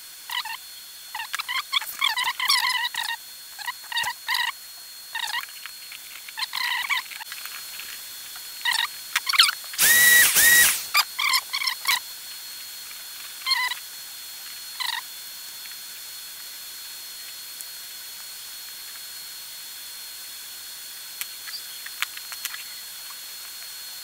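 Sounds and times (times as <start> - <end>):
high squeaks of cloth wiping fan: 13.4 - 13.8.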